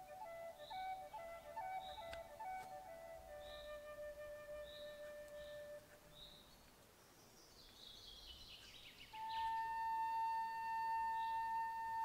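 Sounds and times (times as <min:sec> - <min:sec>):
flute playing: 0:00.0 - 0:06.1, 0:09.1 - 0:12.0.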